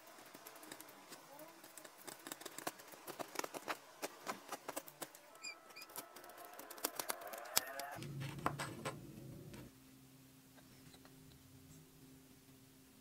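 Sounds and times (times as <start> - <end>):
low steady hum: 8.0 - 13.0.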